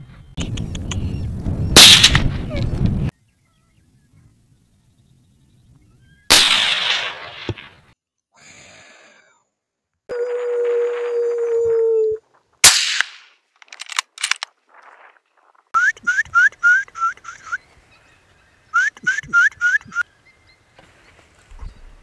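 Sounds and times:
rifle shot: 0:01.8 - 0:02.4, 0:06.3 - 0:07.8, 0:12.6 - 0:13.3.

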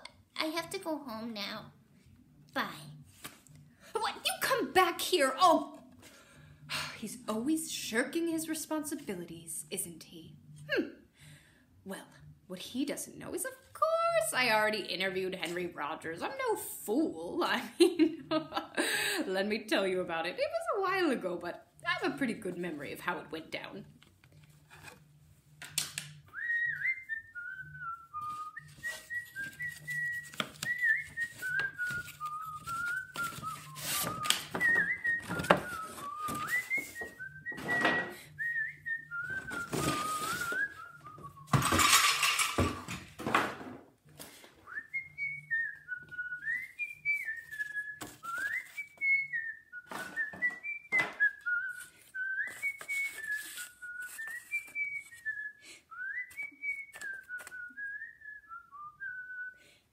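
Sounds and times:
person whistling: 0:26.2 - 0:41.6, 0:44.7 - 0:59.6
paper rustling and knocking: 0:28.3 - 0:38.1, 0:39.3 - 0:40.7, 0:49.9 - 0:51.8.

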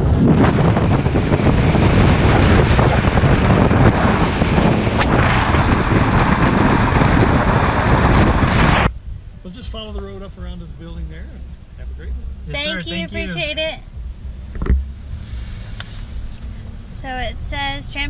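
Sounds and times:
heavy wind on microphone: 0:00.0 - 0:09.2
road noise: 0:00.0 - 0:18.0.

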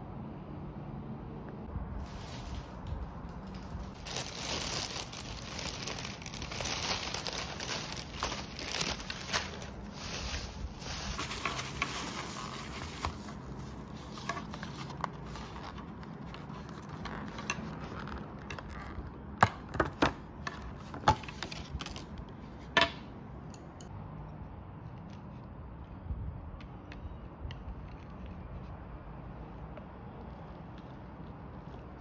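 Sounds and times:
plastic bag crinkling: 0:02.0 - 0:15.8.

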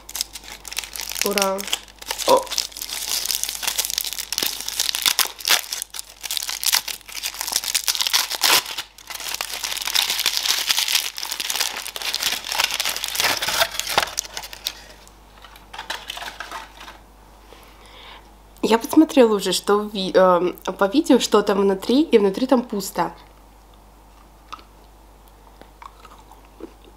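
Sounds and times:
foil wrapper crinkling and tearing: 0:00.0 - 0:17.0.

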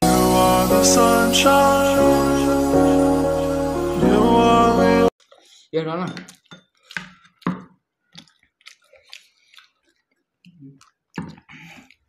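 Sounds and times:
people chewing food: 0:06.2 - 0:12.0.

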